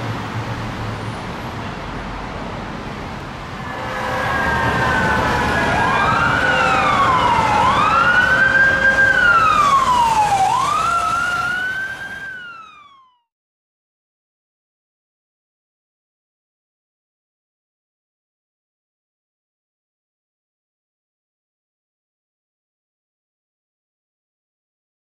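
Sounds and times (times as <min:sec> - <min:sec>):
road traffic: 0:00.0 - 0:13.2
emergency vehicle siren wailing: 0:03.4 - 0:13.3.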